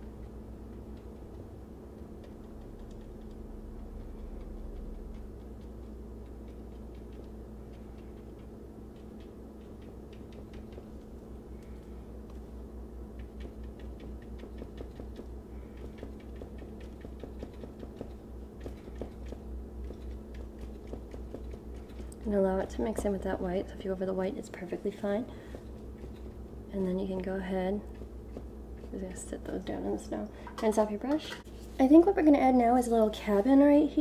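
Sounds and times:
low hum: 0.0 - 34.0
paintbrush tapping canvas: 0.7 - 11.1, 13.1 - 22.3.

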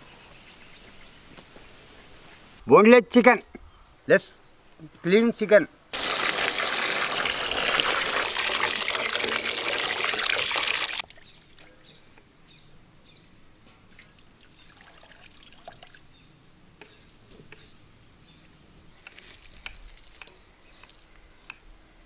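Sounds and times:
water pouring into steel bowl: 6.0 - 11.0, 14.4 - 16.0.

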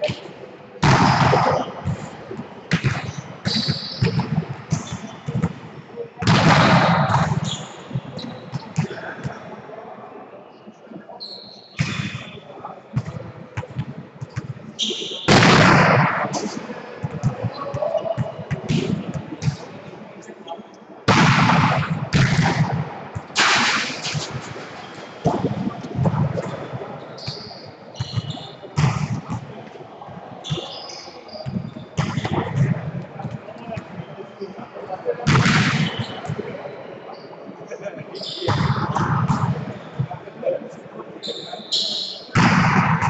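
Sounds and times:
players' voices: 0.0 - 43.0
shoes squeaking on court floor: 24.8 - 34.5.

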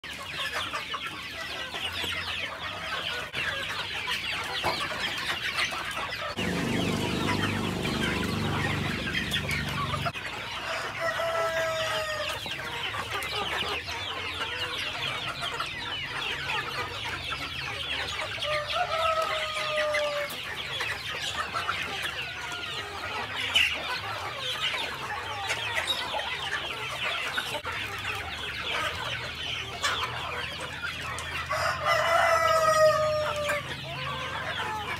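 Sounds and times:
chickens clucking: 0.0 - 34.9
rooster crowing: 6.4 - 12.4, 18.5 - 20.3, 31.5 - 33.8.

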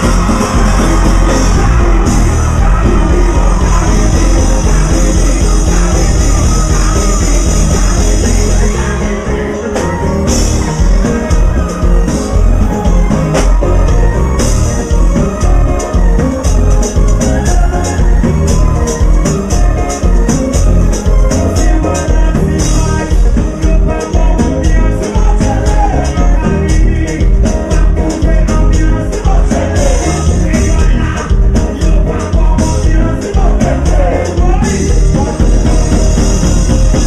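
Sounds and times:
live band music: 0.0 - 37.0
man singing: 0.0 - 37.0.

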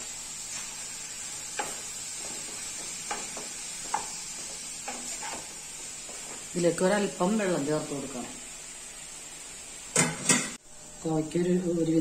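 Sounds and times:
vegetables sizzling: 0.0 - 12.0
spatula scraping a pan: 0.4 - 5.6.

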